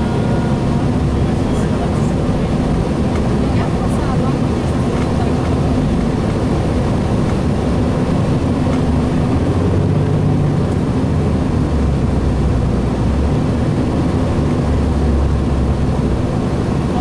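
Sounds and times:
bus diesel engine running: 0.0s - 17.0s
road and wind noise: 0.0s - 17.0s.

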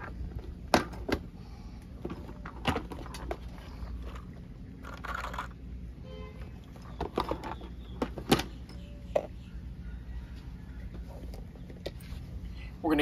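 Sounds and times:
low steady rumble: 0.0s - 13.0s
small parts clicking and clattering: 2.1s - 5.6s.

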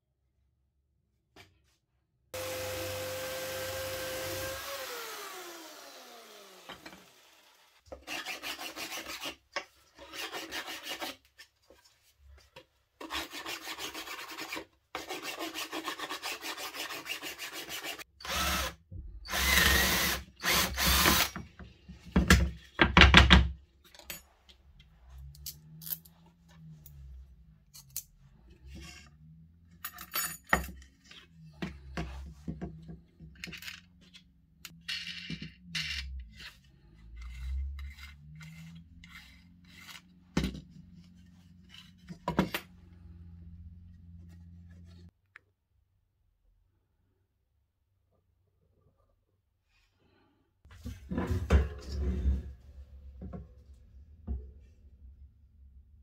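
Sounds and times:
electric jigsaw running: 2.4s - 7.8s, 17.9s - 21.4s
power tool cutting wood: 2.4s - 8.9s, 17.6s - 21.4s.

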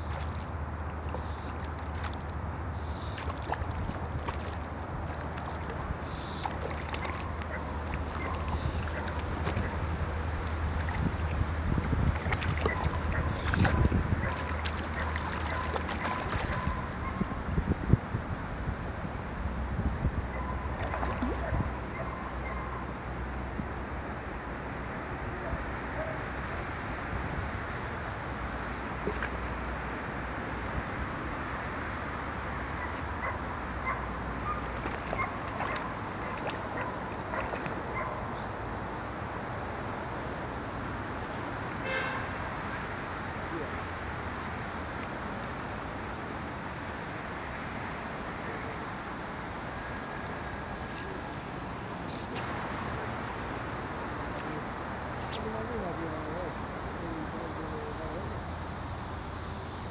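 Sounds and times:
fish splashing in water: 0.0s - 17.0s, 20.7s - 21.8s, 28.9s - 29.7s, 34.4s - 38.4s
wind rumble on microphone: 0.0s - 22.2s.

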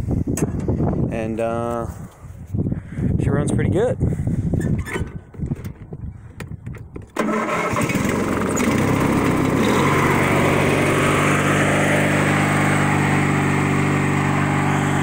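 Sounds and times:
lawn tractor engine running: 7.1s - 15.0s.

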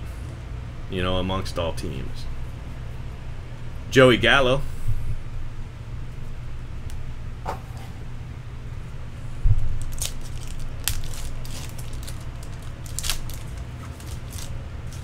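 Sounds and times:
foil wrapper crinkling and tearing: 9.6s - 15.0s.

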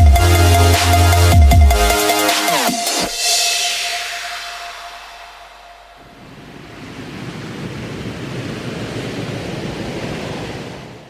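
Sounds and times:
ocean waves breaking: 3.0s - 11.0s.

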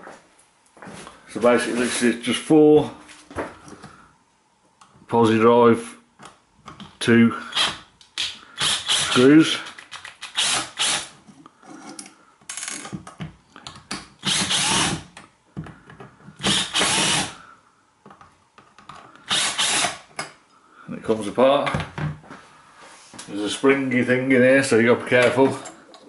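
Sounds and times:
screwdriver grating on screws: 7.5s - 11.1s, 14.2s - 15.1s, 16.4s - 17.4s, 19.2s - 20.1s.

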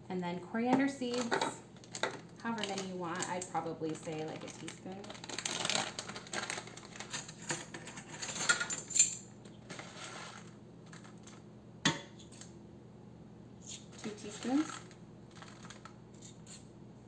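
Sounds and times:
seeds rattling into a metal pan: 14.3s - 16.4s.

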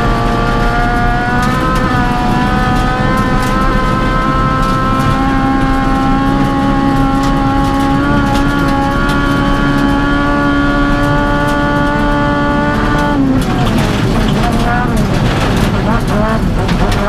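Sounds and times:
car engine at high revs: 0.0s - 17.0s.

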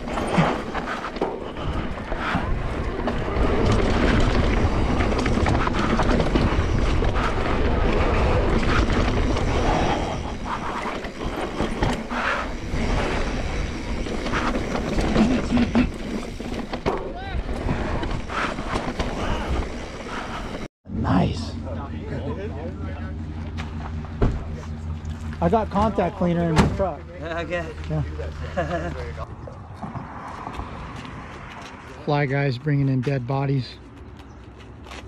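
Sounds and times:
bike rattling over bumps: 0.0s - 20.7s.

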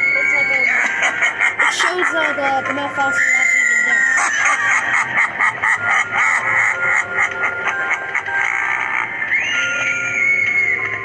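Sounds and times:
rapid cackling laugh from speaker: 0.6s - 2.4s, 4.0s - 9.4s.

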